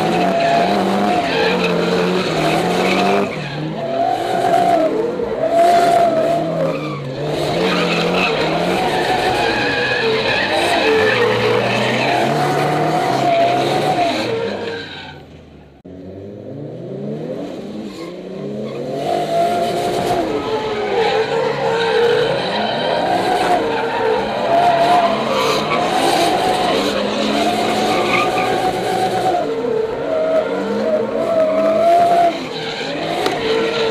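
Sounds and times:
car engine revving hard: 0:00.0 - 0:14.6
tyres squealing and skidding: 0:00.0 - 0:15.8, 0:17.7 - 0:33.9.

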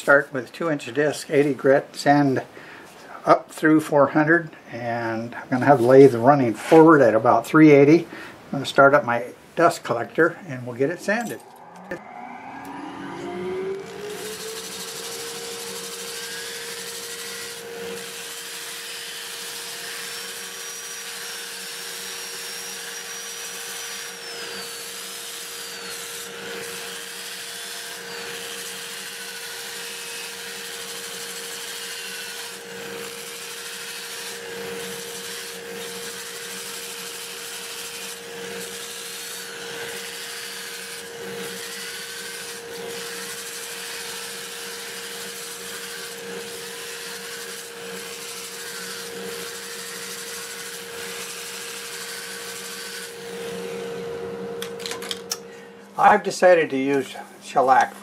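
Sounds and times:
dust collector humming: 0:09.6 - 0:58.0
drill whine: 0:10.9 - 0:54.1
sanding disc scratching wood: 0:13.8 - 0:53.7.

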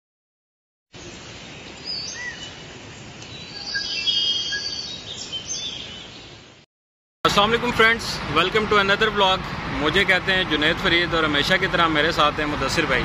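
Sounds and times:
birds chirping and calling: 0:01.1 - 0:06.5.

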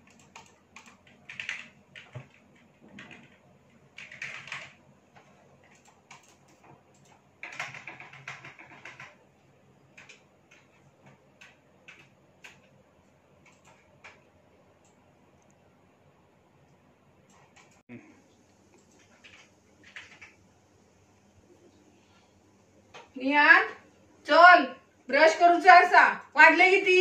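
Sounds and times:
computer keyboard typing: 0:00.0 - 0:09.2, 0:09.9 - 0:15.1, 0:17.3 - 0:17.8, 0:18.7 - 0:20.4.

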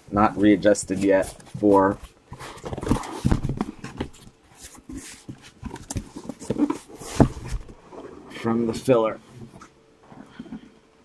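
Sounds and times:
cardboard box rustling and knocking: 0:01.0 - 0:08.1.

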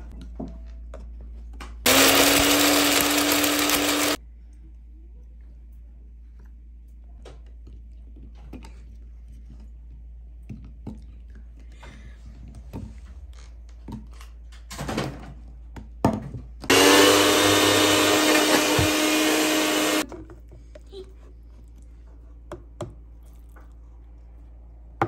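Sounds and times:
electric blender running: 0:01.9 - 0:04.2, 0:16.7 - 0:20.0.

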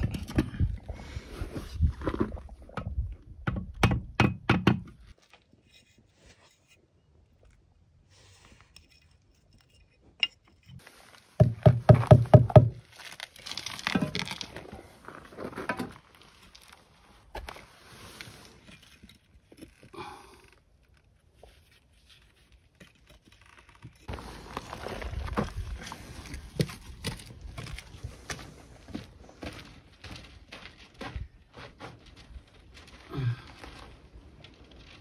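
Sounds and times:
tapping on concrete block: 0:11.4 - 0:12.8.

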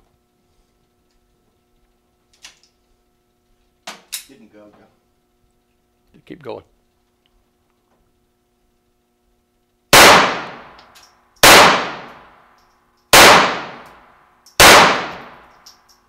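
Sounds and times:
echoing pistol shots: 0:09.9 - 0:10.8, 0:11.4 - 0:12.4, 0:13.1 - 0:14.0, 0:14.6 - 0:15.5.

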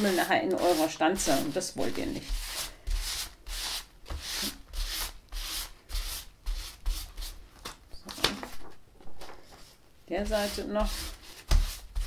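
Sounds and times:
paper towel rubbing paper: 0:00.0 - 0:07.4.

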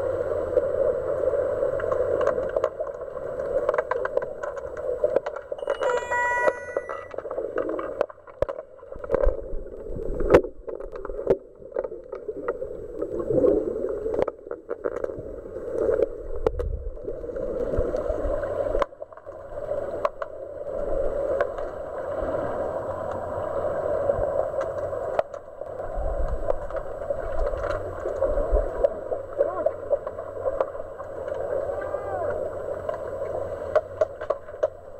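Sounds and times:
muffled underwater water noise: 0:00.0 - 0:34.9
sticks and puck clicking underwater: 0:01.7 - 0:13.4, 0:14.1 - 0:16.8, 0:18.7 - 0:20.4, 0:24.6 - 0:31.6, 0:32.3 - 0:34.9.

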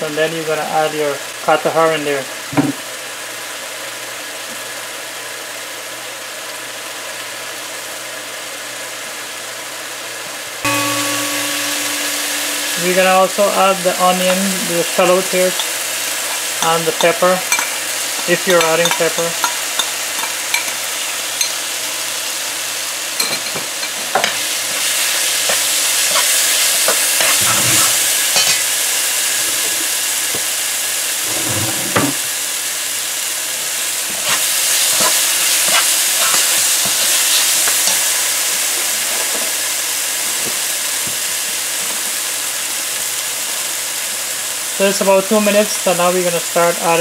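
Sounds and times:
food sizzling in hot oil: 0:00.6 - 0:47.0
metal spoon scraping a pot: 0:34.2 - 0:38.1.

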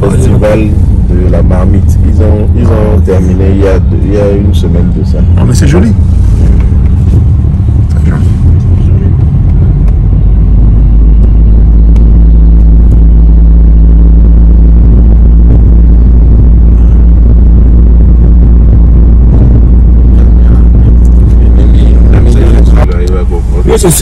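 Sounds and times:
vehicle engine and road rumble: 0:00.0 - 0:24.0.

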